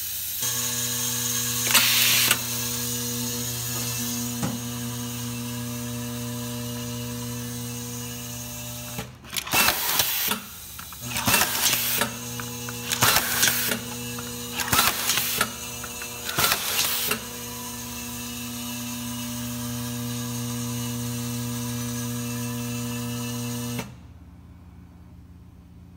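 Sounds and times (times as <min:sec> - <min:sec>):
air screwdriver running and hissing: 0:01.4 - 0:02.6, 0:08.8 - 0:17.7.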